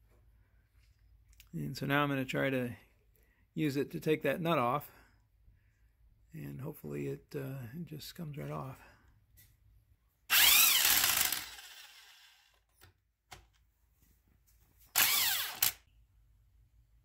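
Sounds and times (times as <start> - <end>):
impact driver whining: 10.3 - 12.6, 14.9 - 15.8.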